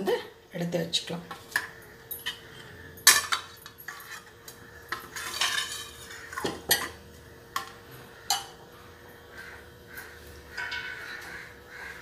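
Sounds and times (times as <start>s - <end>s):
spoon clinking on bowls: 2.1s - 7.0s
spoon scraping bowl: 3.6s - 7.0s.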